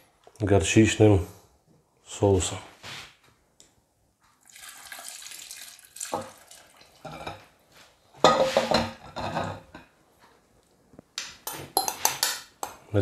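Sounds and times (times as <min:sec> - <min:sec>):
thick sauce pouring: 0:04.4 - 0:07.1
spoon and bowl clinking on pot: 0:11.4 - 0:12.8.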